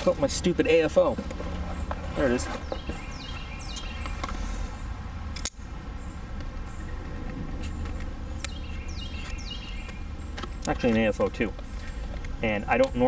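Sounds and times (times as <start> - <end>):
low outdoor rumble: 0.0 - 13.0
sharp click: 5.3 - 5.6.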